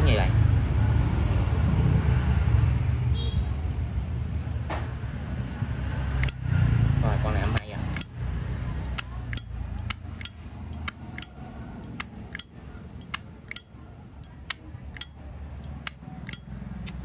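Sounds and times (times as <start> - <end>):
lighter lid clicking open and shut: 9.0 - 17.0.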